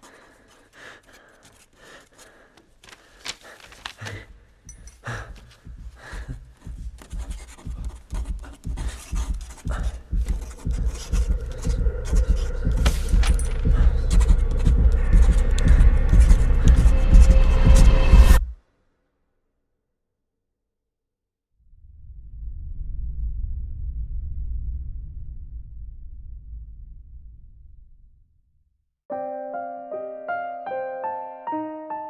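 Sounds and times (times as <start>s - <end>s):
scratching and clicking noises: 0.0s - 18.4s
low rumbling drone: 10.7s - 18.4s, 21.7s - 28.4s.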